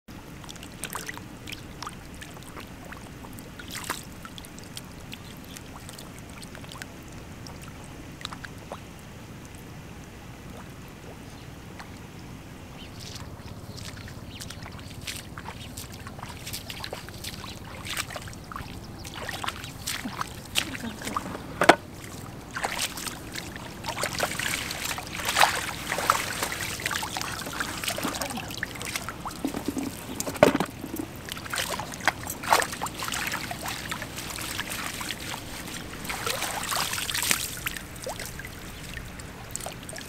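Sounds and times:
feet sloshing through mud: 0:00.5 - 0:06.2, 0:12.8 - 0:40.0
fish splashing in puddle: 0:13.0 - 0:40.0.

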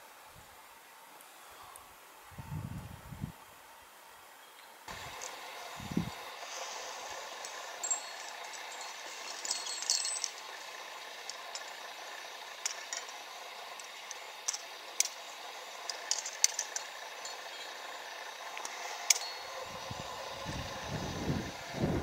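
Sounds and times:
steady hiss: 0:00.0 - 0:22.0
metal climbing gear clinking: 0:06.4 - 0:20.4.

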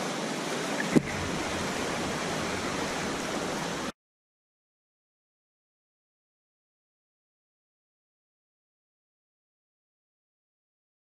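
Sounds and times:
ocean surf washing: 0:00.0 - 0:03.9.

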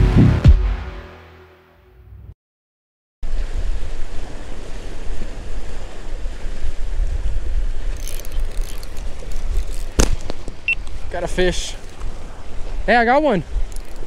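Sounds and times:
wind buffeting microphone: 0:03.4 - 0:14.0
faint ticks: 0:13.7 - 0:14.0.

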